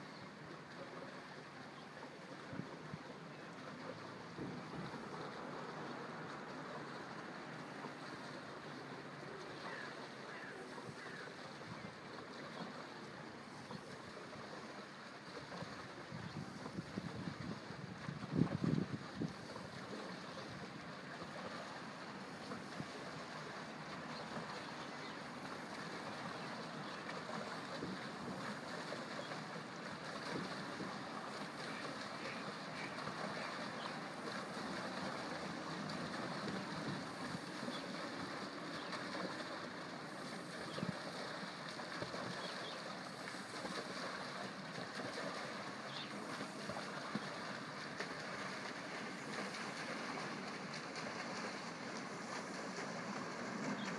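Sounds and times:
water rushing and splashing: 0.0s - 53.9s
wind buffeting microphone: 15.5s - 19.9s.

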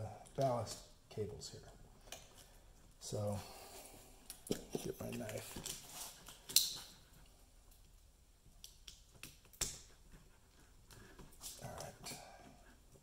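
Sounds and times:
scraping and crinkling: 4.4s - 7.4s.

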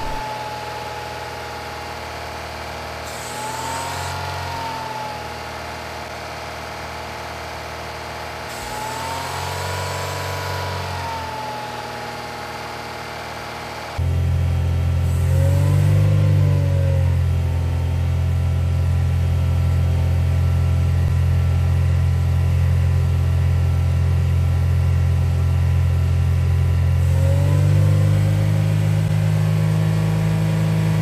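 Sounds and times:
exhaust pipe rumble: 0.0s - 0.2s.

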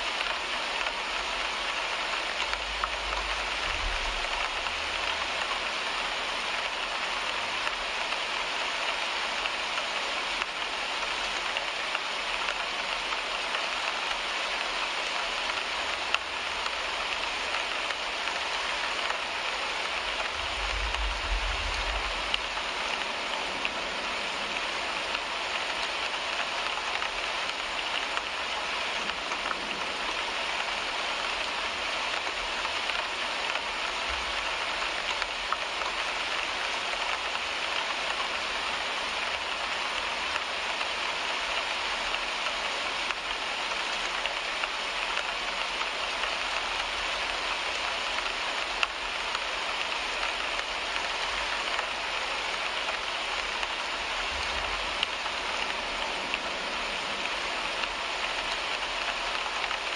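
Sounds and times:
rain on car windshield: 0.0s - 59.9s
low rumble: 20.3s - 23.1s.

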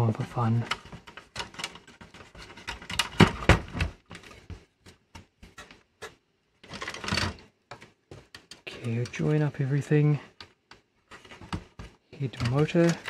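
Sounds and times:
scraping rustle: 0.1s - 10.4s, 11.0s - 13.0s
plastic and metal parts clicking: 0.6s - 4.5s, 6.6s - 9.4s, 10.3s - 13.0s.

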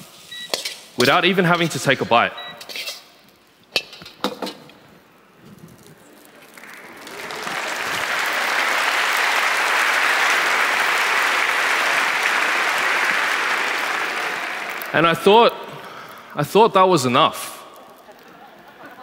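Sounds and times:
audience applauding: 6.2s - 16.3s.

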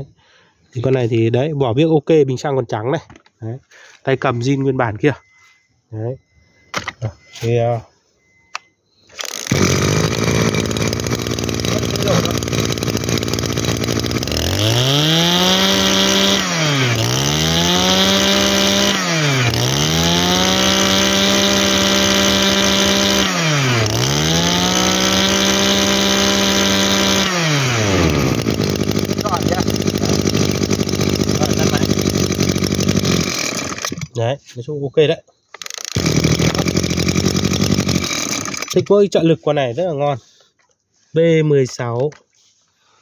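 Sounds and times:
brush cutter engine revving: 9.1s - 34.2s, 35.6s - 39.0s.

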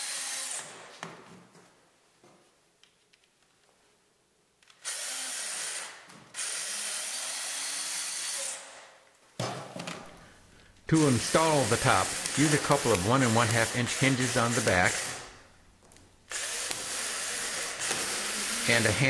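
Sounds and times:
power drill driving screws: 0.0s - 0.9s, 4.7s - 8.9s, 10.9s - 15.5s, 16.3s - 19.0s.

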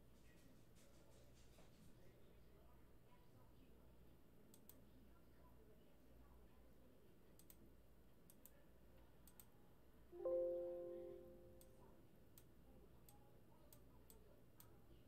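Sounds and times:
faint low hum: 0.0s - 15.0s
computer mouse clicking: 4.5s - 4.8s, 7.4s - 7.6s, 8.3s - 8.6s, 9.2s - 9.5s
computer error chime: 10.2s - 11.8s.

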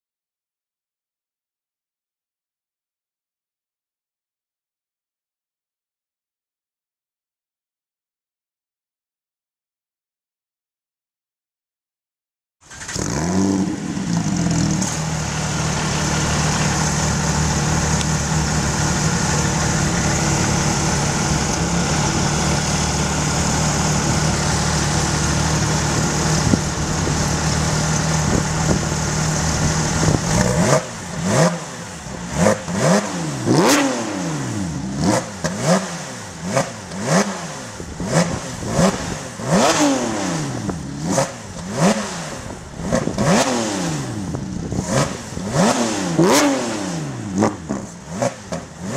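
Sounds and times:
engine revving: 12.6s - 48.9s
sports car engine idling: 13.7s - 32.8s.

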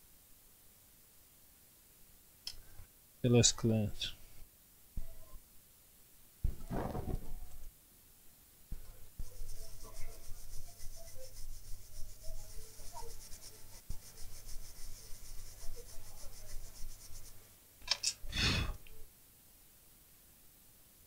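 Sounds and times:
short clatter: 6.5s - 7.6s
cotton swab scratchy rubbing: 8.7s - 17.4s.

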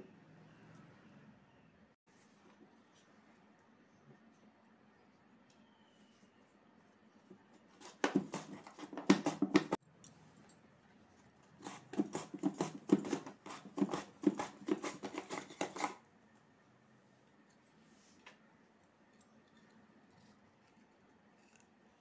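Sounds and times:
potato scraping on mandoline slicer: 11.6s - 16.0s.

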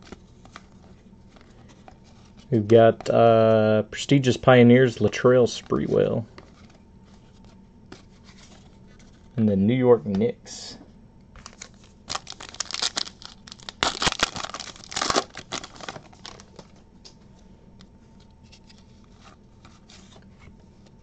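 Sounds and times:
foil wrapper tearing and crinkling: 11.4s - 16.7s.

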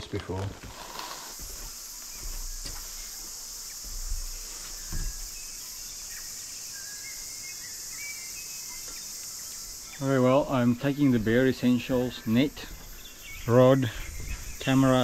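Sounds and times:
cicadas droning: 0.0s - 15.0s
soft thumps: 0.6s - 6.0s.

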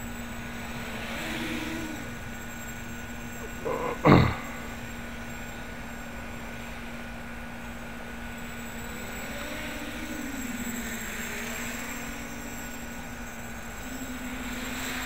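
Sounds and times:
drone motors humming: 0.0s - 15.0s.

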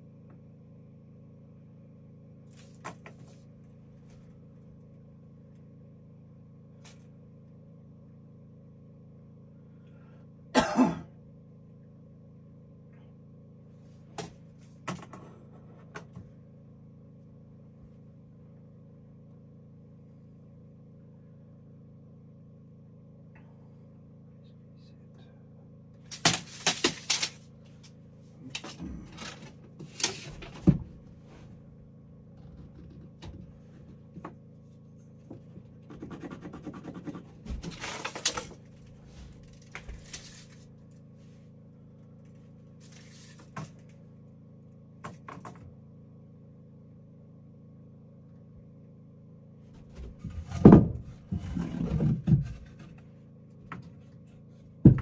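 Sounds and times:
faint steady hum: 0.0s - 55.0s
objects knocking and clattering: 26.1s - 27.4s, 49.8s - 53.0s
thuds: 30.2s - 31.5s.

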